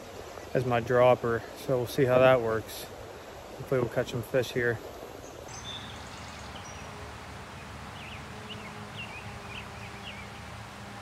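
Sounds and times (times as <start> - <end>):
small stream hissing: 0.0 - 11.0
small bird chirping: 5.2 - 6.9.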